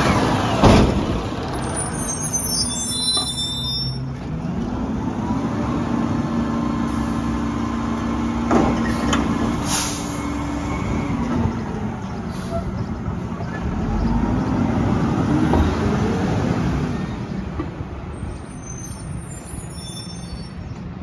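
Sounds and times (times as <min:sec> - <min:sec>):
high squeal: 0:01.5 - 0:04.2, 0:18.1 - 0:20.8.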